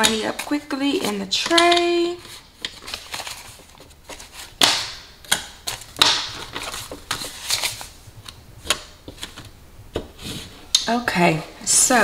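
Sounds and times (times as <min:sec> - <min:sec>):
banknotes rustling and flicking: 0:00.0 - 0:09.5.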